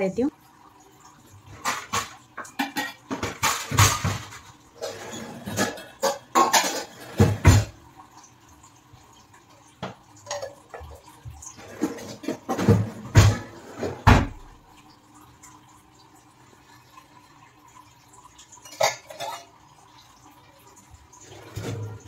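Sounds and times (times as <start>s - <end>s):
dishes clattering in drawer rack: 1.5s - 7.8s, 9.8s - 11.0s, 11.6s - 14.5s, 18.6s - 19.5s, 21.2s - 22.0s.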